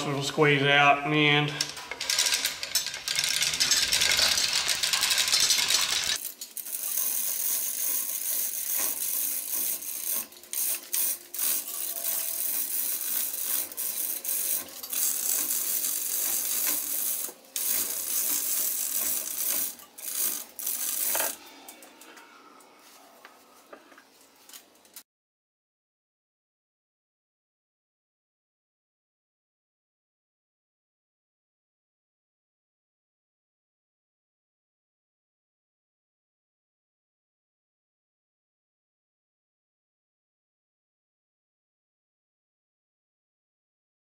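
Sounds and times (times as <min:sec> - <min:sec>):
hoist chain rattling and clicking: 0:01.5 - 0:22.0.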